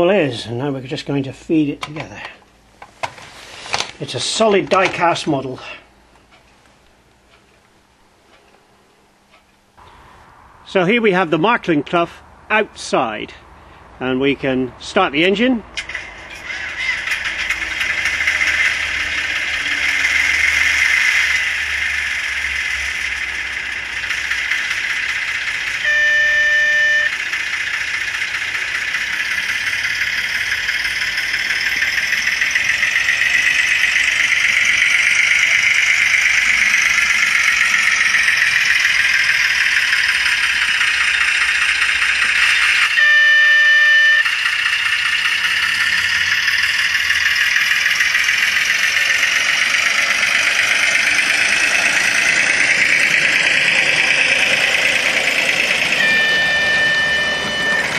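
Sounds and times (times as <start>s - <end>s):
small diesel engine running: 15.7s - 57.9s
short horn blasts: 25.8s - 27.1s, 42.9s - 44.4s.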